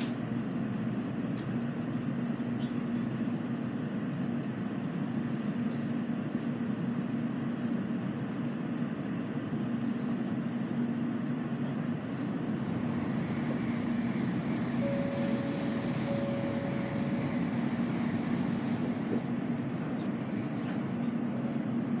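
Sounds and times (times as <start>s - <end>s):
train interior low rumble: 0.0s - 22.0s
higher tone: 14.6s - 17.5s.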